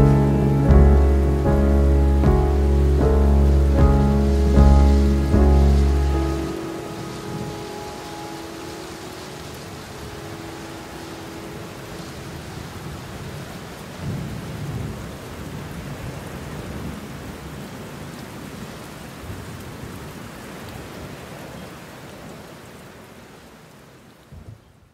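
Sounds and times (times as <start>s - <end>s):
thunder rumble: 0.0s - 17.0s
steady rain: 0.0s - 24.9s.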